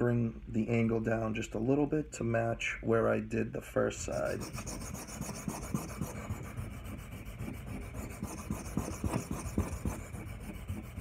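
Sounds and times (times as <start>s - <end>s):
knife scraping on whetstone: 4.4s - 11.0s.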